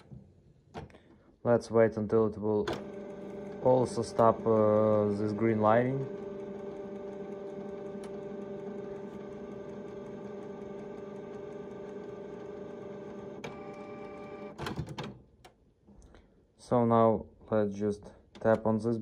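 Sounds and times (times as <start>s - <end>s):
printer motor whining: 2.6s - 14.6s
printer mechanism clicks and clunks: 2.6s - 15.5s.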